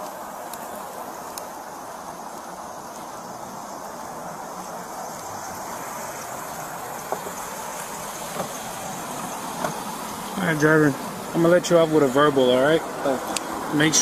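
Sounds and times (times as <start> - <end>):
street and traffic noise: 0.0 - 14.0
faint clicks: 1.3 - 1.5.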